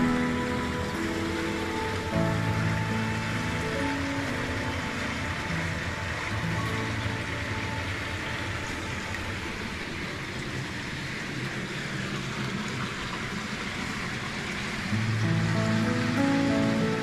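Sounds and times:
water rushing along canal: 0:00.0 - 0:17.0.

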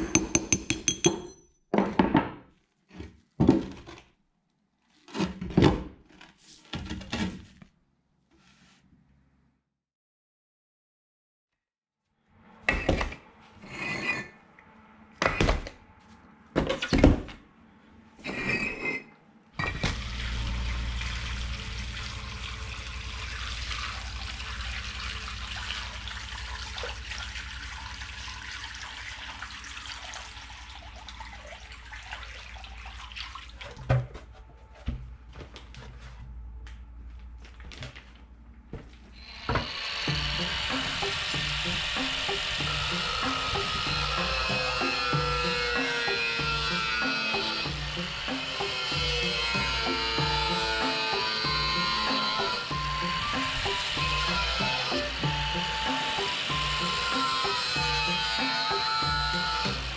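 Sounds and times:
water splashing into tub: 0:19.8 - 0:33.9
water pouring from bucket: 0:19.9 - 0:33.9.

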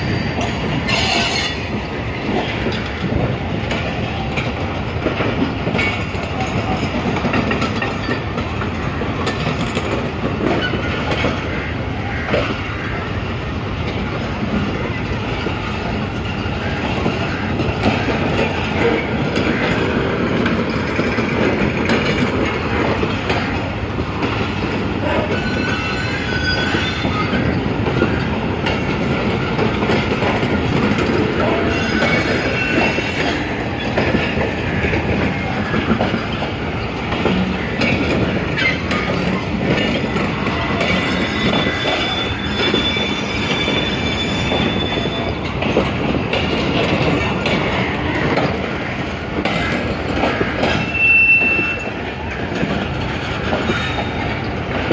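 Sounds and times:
high wheel squeals: 0:00.0 - 0:02.1, 0:25.1 - 0:28.2, 0:31.6 - 0:34.4, 0:38.5 - 0:45.7, 0:50.7 - 0:52.1, 0:53.6 - 0:54.6
train wheels clattering over rails: 0:00.0 - 0:54.9.

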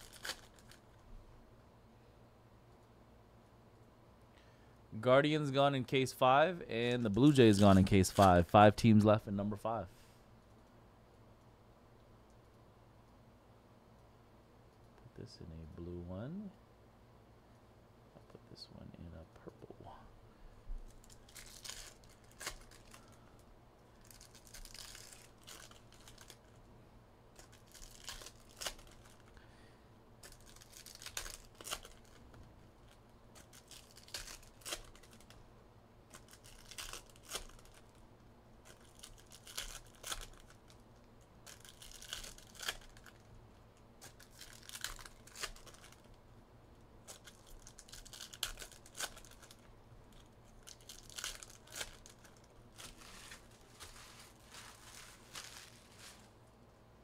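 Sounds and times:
card packs tearing open: 0:00.0 - 0:00.8, 0:21.0 - 0:23.2, 0:24.0 - 0:26.4, 0:27.4 - 0:29.3, 0:30.2 - 0:32.2, 0:32.8 - 0:35.4, 0:36.1 - 0:38.0, 0:38.6 - 0:40.8, 0:41.4 - 0:43.2, 0:44.0 - 0:46.1, 0:47.0 - 0:49.6, 0:50.2 - 0:56.3
wrappers crinkling: 0:00.0 - 0:01.0, 0:20.9 - 0:26.7, 0:27.3 - 0:29.4, 0:30.2 - 0:35.4, 0:36.1 - 0:38.0, 0:38.6 - 0:43.3, 0:44.0 - 0:46.2, 0:47.0 - 0:56.5.

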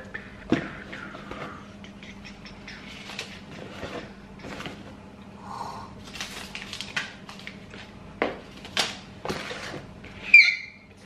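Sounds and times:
paper and plastic rustling: 0:02.9 - 0:04.9, 0:06.0 - 0:10.2.

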